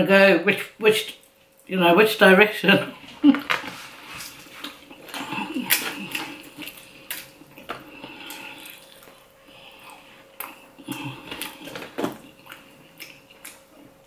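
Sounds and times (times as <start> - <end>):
close-up chewing: 3.4 - 14.0.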